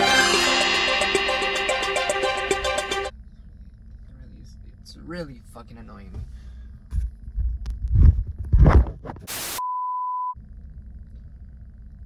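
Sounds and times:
burst of static: 0:09.2 - 0:09.6.

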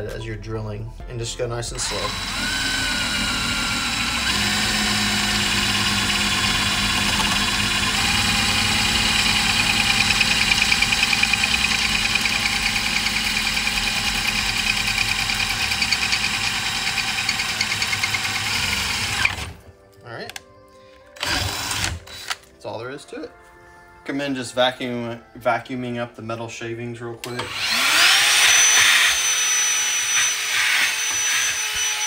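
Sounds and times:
cordless drill boring metal: 0:01.8 - 0:19.6, 0:21.2 - 0:22.4, 0:27.2 - 0:32.0.

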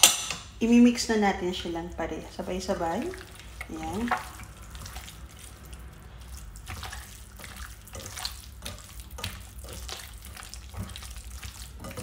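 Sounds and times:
hand squelching meat in marinade: 0:01.6 - 0:12.0.

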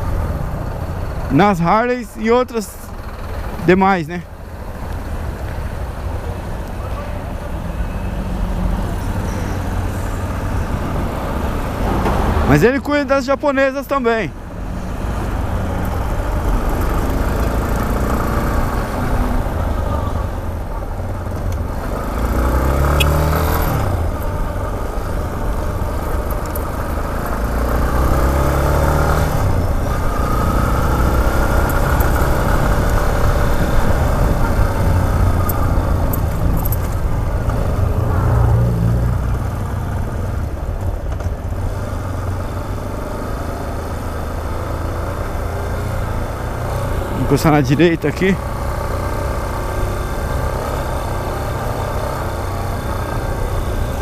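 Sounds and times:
motorcycle engine revving: 0:15.0 - 0:54.0.

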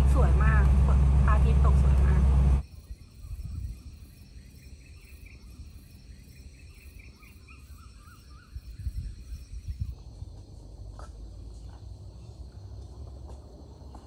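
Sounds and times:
low rumble: 0:00.0 - 0:02.6
insects trilling: 0:02.6 - 0:12.8
bird chirping: 0:02.8 - 0:10.2.

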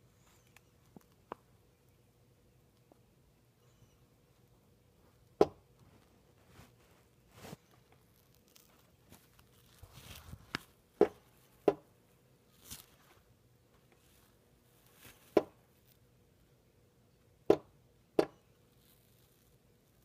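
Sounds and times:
soft rustle: 0:03.6 - 0:16.1, 0:18.6 - 0:20.0.

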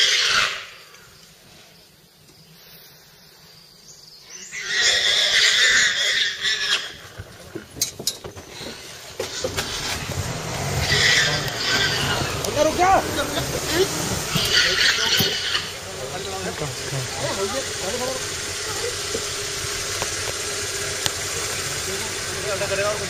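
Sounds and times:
boar squealing: 0:00.0 - 0:00.9, 0:04.3 - 0:07.2, 0:08.7 - 0:16.0.

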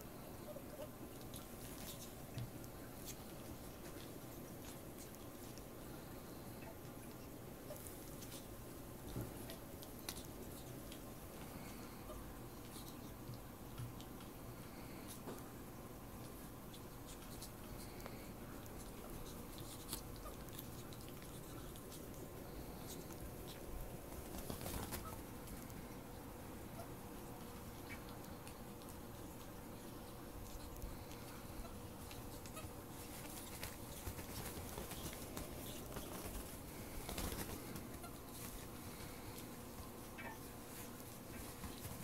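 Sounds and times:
rustling and scuffling on bedding: 0:22.9 - 0:25.7, 0:31.8 - 0:42.0.

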